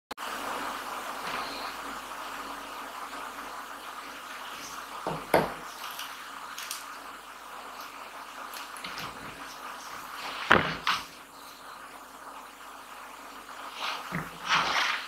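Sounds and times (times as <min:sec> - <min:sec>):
faint hiss: 0:00.2 - 0:15.0
book knocking on wooden table: 0:10.5 - 0:11.0
hands rubbing book covers: 0:13.6 - 0:15.0.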